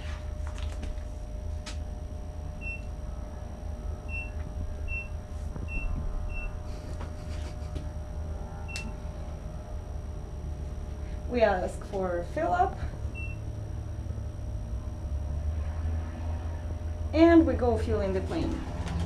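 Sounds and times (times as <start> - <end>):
steady low rumble: 0.0 - 19.0
high keypad beeps: 4.1 - 6.6, 8.7 - 9.0, 13.1 - 13.4.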